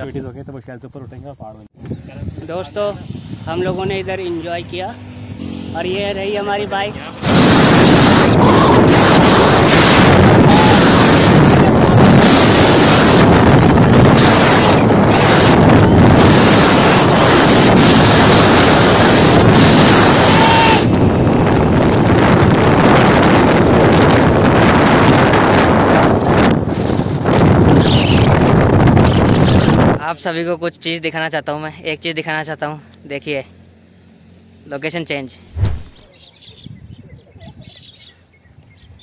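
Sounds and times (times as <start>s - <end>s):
wind buffeting microphone: 1.8s - 4.4s, 7.2s - 30.0s, 35.6s - 39.0s.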